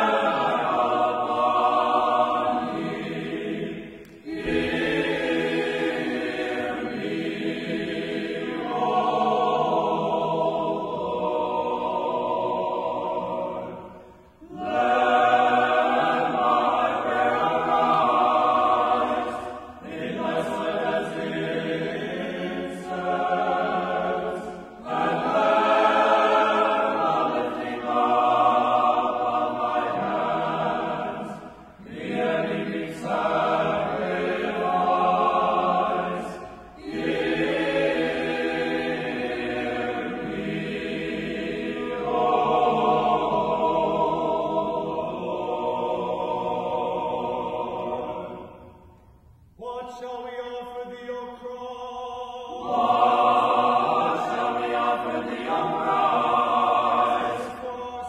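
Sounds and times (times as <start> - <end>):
choir chanting: 0.0 - 58.0.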